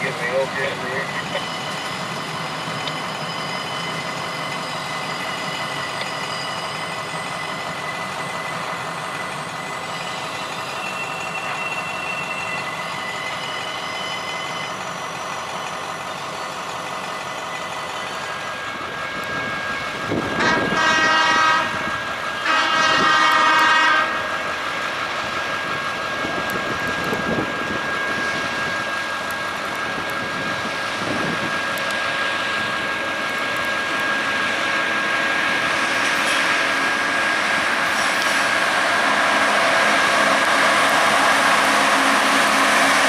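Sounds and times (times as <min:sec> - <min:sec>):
train wheels on rails: 0:00.0 - 0:43.0
train horn: 0:20.3 - 0:24.3.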